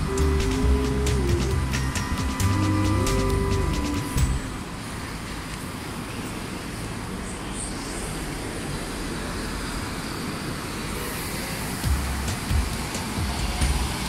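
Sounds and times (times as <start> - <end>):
low rumble: 0.0 - 4.8
passing vehicles: 0.0 - 14.0.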